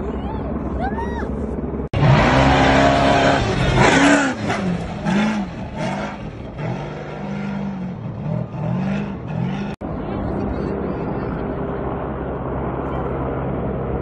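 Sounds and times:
truck engine revving hard: 2.0 - 9.8.

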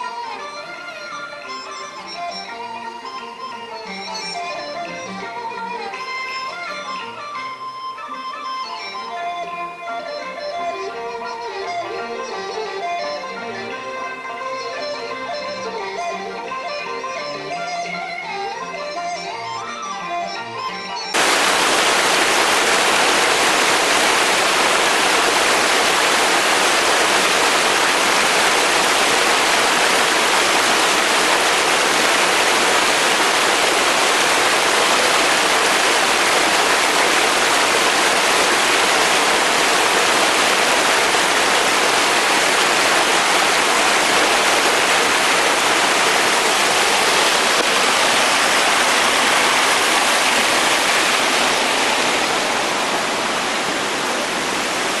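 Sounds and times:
stream rushing over rocks: 21.2 - 55.0.

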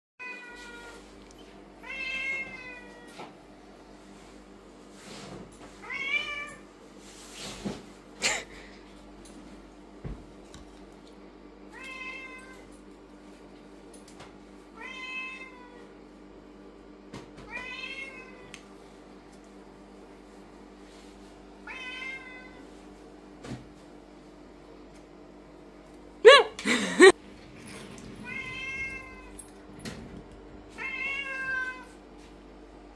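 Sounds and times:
cat meowing: 30.7 - 31.9.

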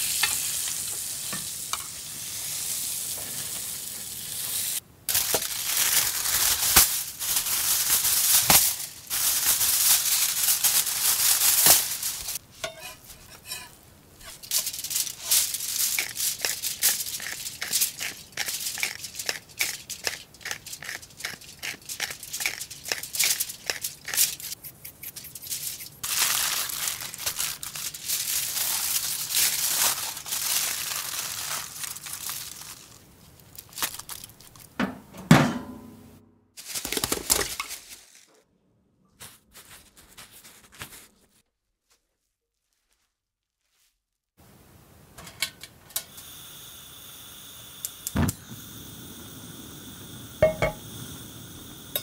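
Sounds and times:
aluminium foil crinkling: 2.3 - 34.8, 36.6 - 38.4, 39.2 - 44.0.

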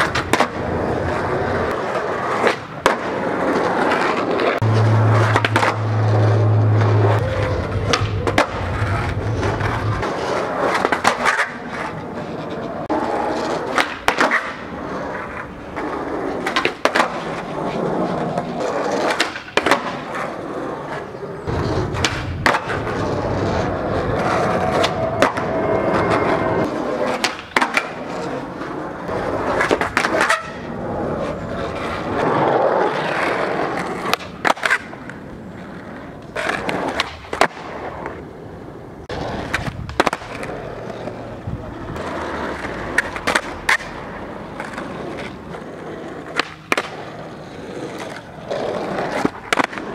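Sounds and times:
skateboard landing clacks: 0.0 - 6.2, 6.9 - 12.0, 13.7 - 15.8, 16.4 - 17.4, 18.8 - 20.2, 21.5 - 25.5, 27.0 - 28.3, 39.2 - 41.2, 41.9 - 49.9
skateboard wheels rolling on asphalt: 0.0 - 49.9
skateboard tail pops: 2.3 - 3.2, 4.0 - 5.8, 13.7 - 14.6, 19.0 - 20.2, 21.5 - 23.1, 27.0 - 28.1, 34.0 - 35.2, 36.2 - 38.2, 39.3 - 41.1, 46.3 - 47.2, 49.0 - 49.9.

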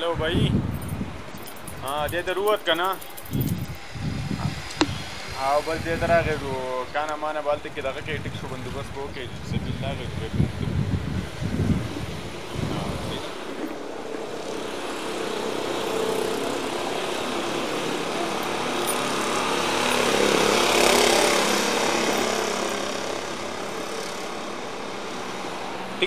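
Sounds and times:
small vehicle engine passing: 10.0 - 26.0.

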